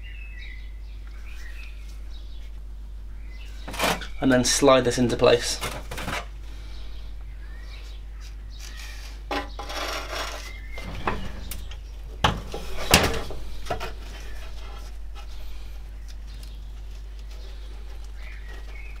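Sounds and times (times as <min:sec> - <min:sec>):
metal scraping and rubbing: 0:08.8 - 0:19.0.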